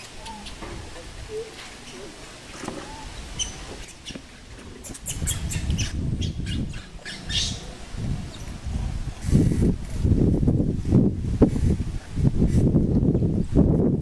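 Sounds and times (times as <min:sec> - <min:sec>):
high animal chirping calls: 0:00.0 - 0:00.6, 0:02.8 - 0:08.6
low rumble with crackling: 0:04.4 - 0:14.0.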